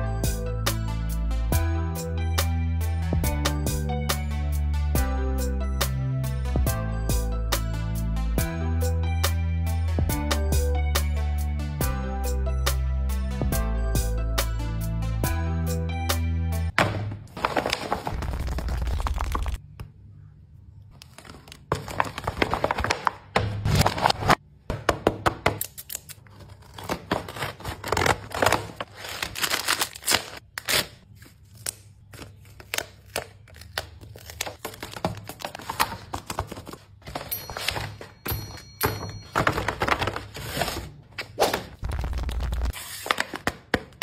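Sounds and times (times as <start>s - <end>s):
paper rustling and crinkling: 17.3s - 19.6s, 21.0s - 24.4s, 26.3s - 38.2s, 39.2s - 43.7s.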